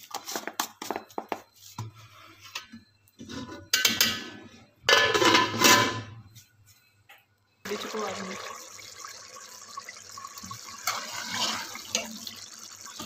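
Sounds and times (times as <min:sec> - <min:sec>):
metal lid clanking on a pot: 0:04.9 - 0:06.1.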